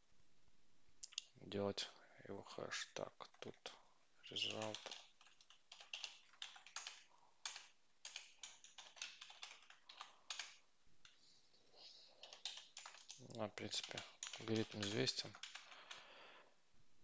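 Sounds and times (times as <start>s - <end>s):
faint keyboard typing: 3.2s - 11.2s, 12.1s - 16.2s.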